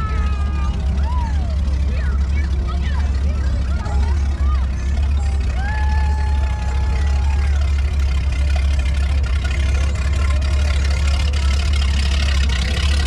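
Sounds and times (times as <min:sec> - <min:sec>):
faint voices: 0:00.0 - 0:13.0
motorboat engine drone: 0:00.0 - 0:13.0.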